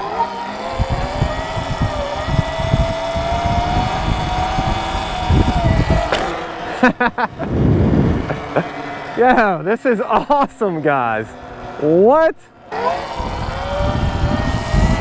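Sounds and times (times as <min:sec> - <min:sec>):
electric motor whining: 0:00.0 - 0:06.8, 0:12.7 - 0:15.0
wind buffeting microphone: 0:00.6 - 0:08.6, 0:13.0 - 0:15.0.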